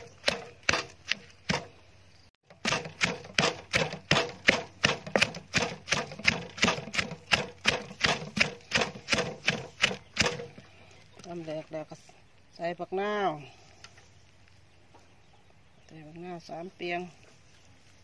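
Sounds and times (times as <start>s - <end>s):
pestle pounding in clay mortar: 0.0s - 1.7s, 2.5s - 10.6s.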